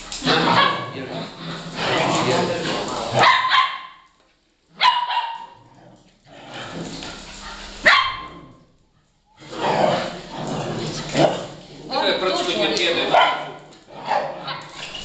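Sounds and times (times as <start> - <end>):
dog barking: 0.3 - 0.9, 3.2 - 4.1, 4.8 - 5.6, 7.8 - 8.5, 13.1 - 14.8.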